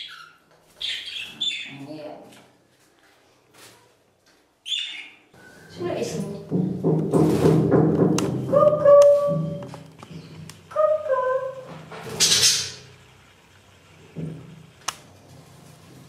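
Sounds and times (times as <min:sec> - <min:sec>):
click: 0:14.8 - 0:15.0.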